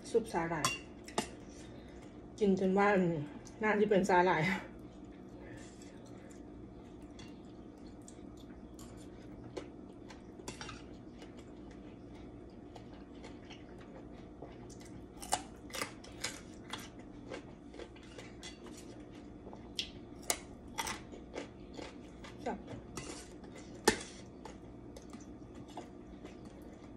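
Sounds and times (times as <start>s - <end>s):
steady hum: 0.0s - 26.9s
chewing raw carrot crunching: 5.7s - 26.9s.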